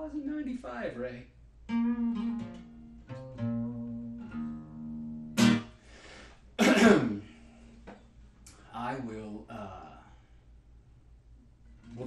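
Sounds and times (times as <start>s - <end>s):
acoustic guitar notes picked: 1.7s - 5.8s, 6.6s - 7.8s
loud guitar strums: 1.7s - 5.9s.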